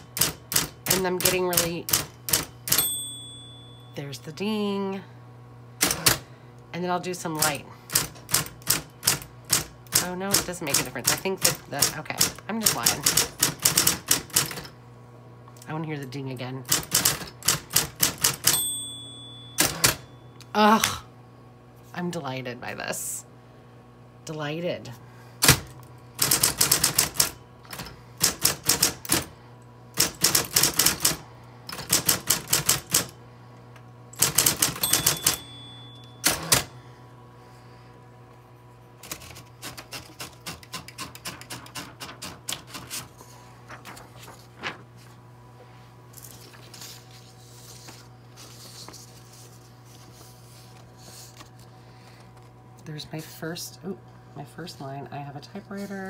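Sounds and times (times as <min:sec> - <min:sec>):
typewriter motor hum: 0:00.0 - 0:03.0, 0:05.8 - 0:06.3, 0:07.3 - 0:14.8, 0:16.7 - 0:18.8, 0:19.5 - 0:20.1, 0:25.4 - 0:36.8, 0:39.0 - 0:44.8
typewriter margin bell ding: 0:02.3 - 0:04.0, 0:18.2 - 0:20.3, 0:34.4 - 0:36.7
typewriter key strikes: 0:34.2 - 0:36.7
paper rustling: 0:42.2 - 0:45.2, 0:46.2 - 0:52.5.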